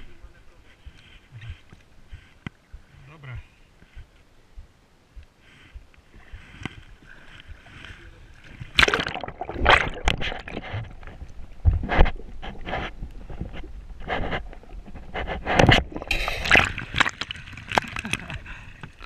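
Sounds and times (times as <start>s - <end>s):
kayak splashing in water: 8.5s - 13.1s, 15.2s - 19.0s.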